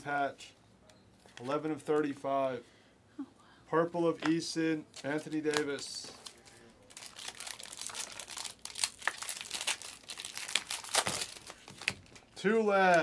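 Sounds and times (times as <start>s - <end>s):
wrapper tearing and crinkling: 5.0s - 12.3s.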